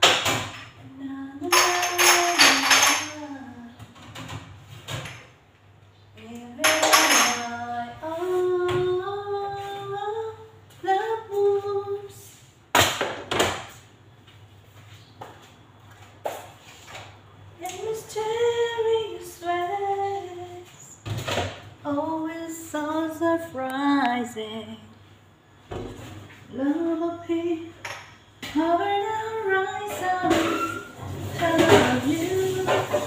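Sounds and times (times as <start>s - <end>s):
woman singing: 0.8s - 4.0s, 6.2s - 12.3s, 17.6s - 21.0s, 21.8s - 24.9s, 26.5s - 27.8s, 28.4s - 33.0s
kitchenware clattering: 1.4s - 3.3s, 6.6s - 7.7s, 29.8s - 33.0s.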